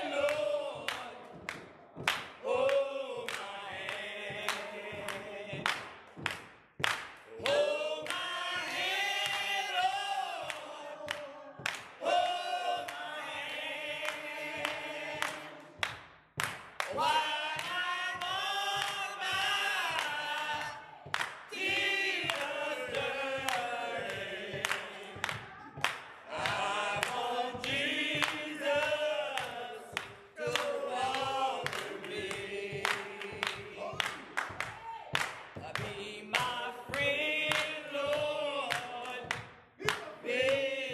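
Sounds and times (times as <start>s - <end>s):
group singing gospel song: 0.0s - 40.9s
hand claps: 0.0s - 40.9s.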